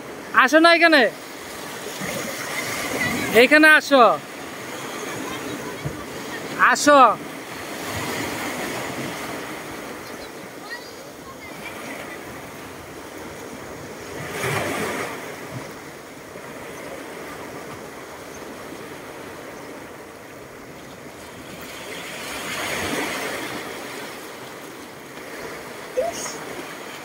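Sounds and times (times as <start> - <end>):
sea waves washing over pebbles: 11.4 - 27.0.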